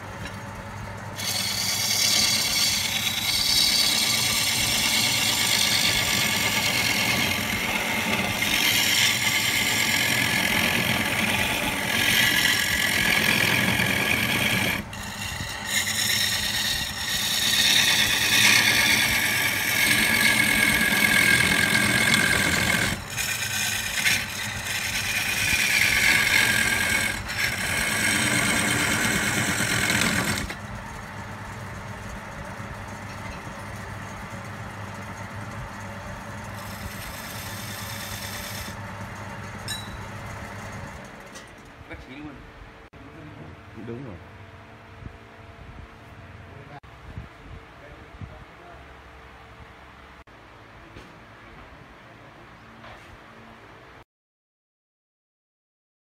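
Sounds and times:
gouge cutting spinning wood: 0:00.0 - 0:41.6
lathe motor hum: 0:00.0 - 0:41.6.

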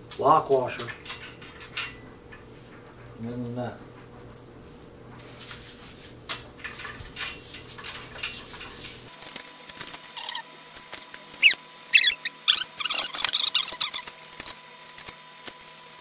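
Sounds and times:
small bolts clicking and rattling: 0:00.6 - 0:02.8
short high squeaks: 0:10.1 - 0:10.5, 0:11.3 - 0:14.2.

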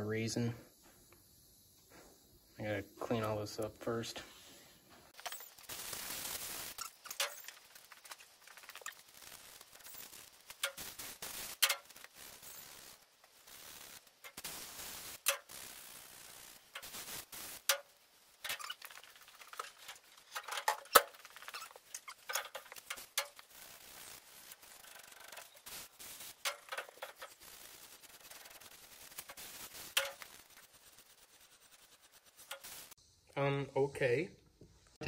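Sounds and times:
metal scraping: 0:05.2 - 0:12.9, 0:16.2 - 0:33.0.

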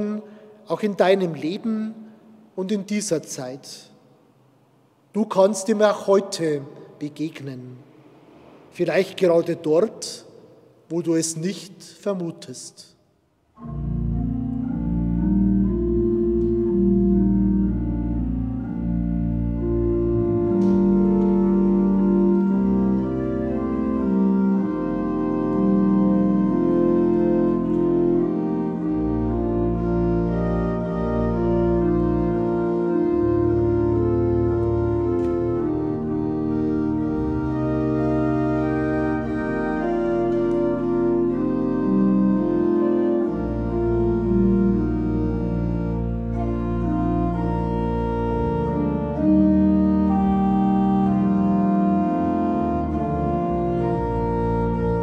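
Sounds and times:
pipe organ playing chords: 0:00.0 - 0:12.8, 0:13.5 - 0:55.0
deep organ pedal bass notes: 0:13.6 - 0:55.0.

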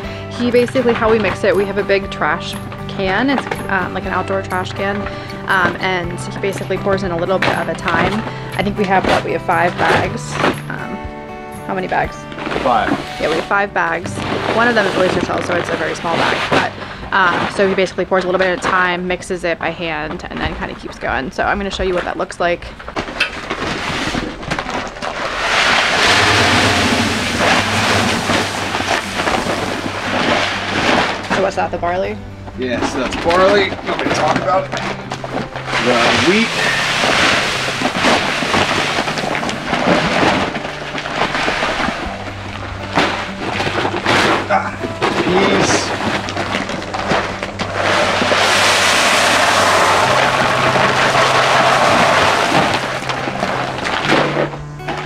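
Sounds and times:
background music low notes: 0:00.0 - 0:55.0
paper sack rustling: 0:12.2 - 0:19.1, 0:22.7 - 0:31.8, 0:32.6 - 0:55.0
grain pouring into plastic bin: 0:35.6 - 0:42.2, 0:45.2 - 0:54.4.

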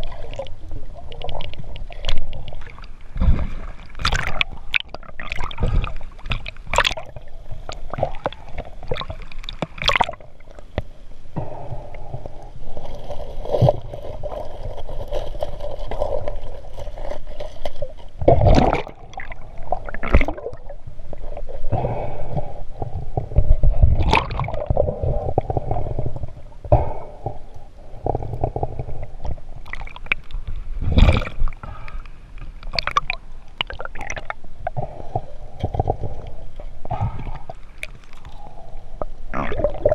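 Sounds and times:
water splashing and gurgling: 0:00.0 - 0:39.9
splashes and knocks: 0:01.2 - 0:10.2, 0:17.2 - 0:20.7.

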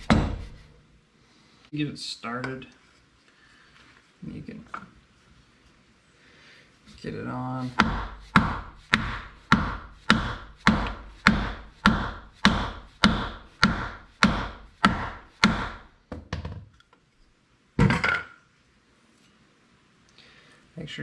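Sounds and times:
mallet striking wooden block: 0:00.0 - 0:00.6, 0:07.7 - 0:15.9.

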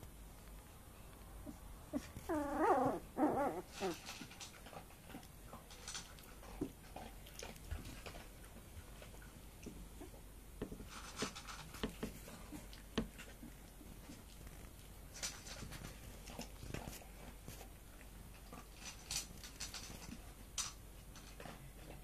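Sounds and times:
scratching and rustling of bedding: 0:00.0 - 0:22.0
puppies high-pitched calls: 0:01.4 - 0:04.1.

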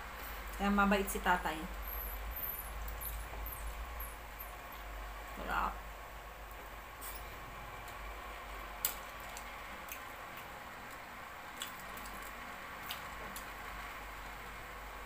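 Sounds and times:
clicks and smacks of eating: 0:08.8 - 0:13.6.

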